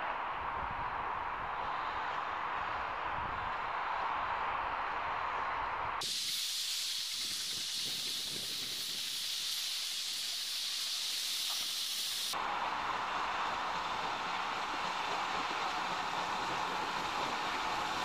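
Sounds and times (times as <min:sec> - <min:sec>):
steam hissing from locomotive: 0:06.0 - 0:18.0.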